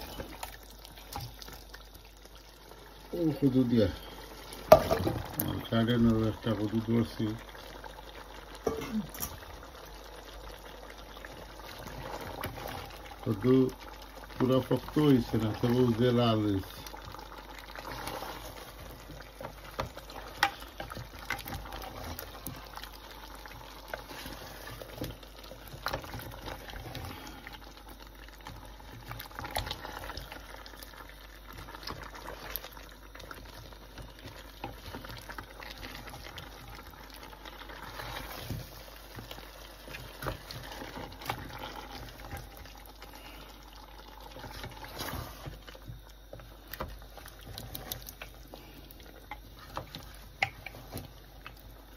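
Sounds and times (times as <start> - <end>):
curry bubbling in a pot: 0.0 - 51.9.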